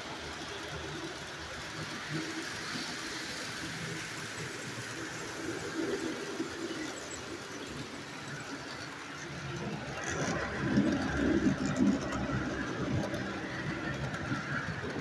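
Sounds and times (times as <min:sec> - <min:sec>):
model trains rumbling on track: 0:00.0 - 0:15.0.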